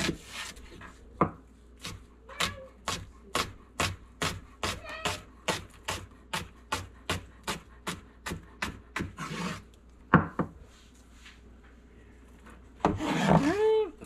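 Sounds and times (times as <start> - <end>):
knife scraping board: 0.0 - 0.9, 1.8 - 9.7, 12.9 - 13.6
knife chopping on cutting board: 1.2 - 9.6.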